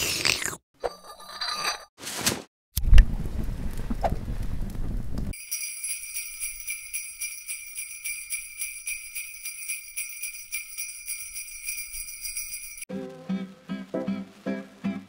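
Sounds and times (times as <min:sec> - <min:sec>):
sleigh bells jingling: 0:05.3 - 0:12.9.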